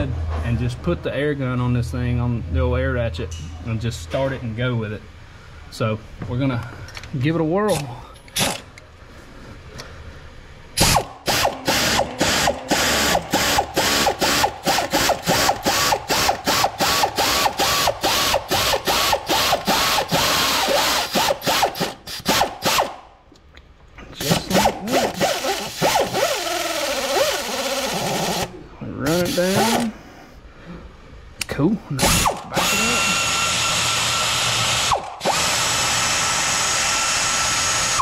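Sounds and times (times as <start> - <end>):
pneumatic air ratchet stuttering: 7.7 - 8.7, 10.8 - 23.0, 24.2 - 28.5, 29.1 - 29.9, 32.0 - 38.0.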